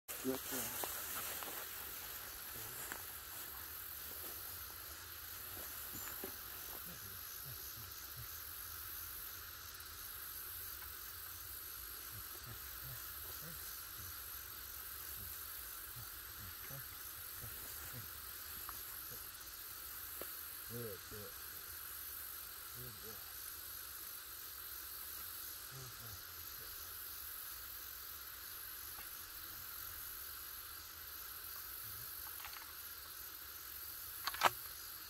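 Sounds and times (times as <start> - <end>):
insects chorus: 0.0 - 35.0.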